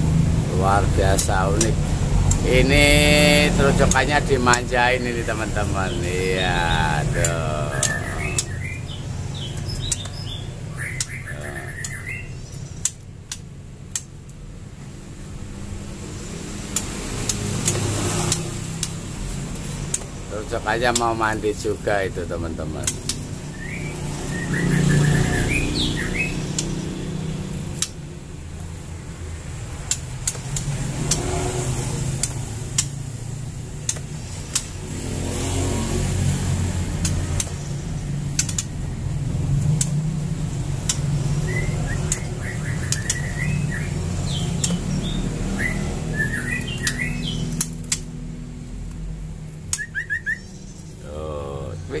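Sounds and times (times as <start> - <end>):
caged songbirds chirping: 0.0 - 52.0
sharp clicks: 0.8 - 2.8, 3.6 - 8.7, 9.4 - 14.5, 16.6 - 21.5, 22.7 - 25.2, 26.4 - 26.9, 27.7 - 28.7, 29.6 - 48.2, 49.6 - 49.9.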